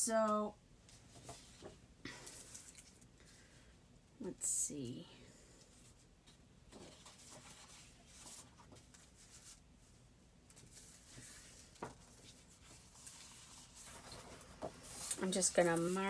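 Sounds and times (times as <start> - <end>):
paper sheets rustling: 10.5 - 16.0.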